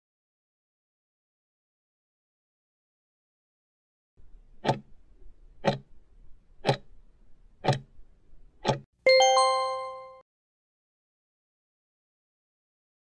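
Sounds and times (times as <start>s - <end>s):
clock ticks: 4.6s - 4.9s, 5.6s - 5.9s, 6.6s - 6.9s, 7.6s - 7.9s, 8.6s - 8.8s
bright chime: 9.1s - 10.2s.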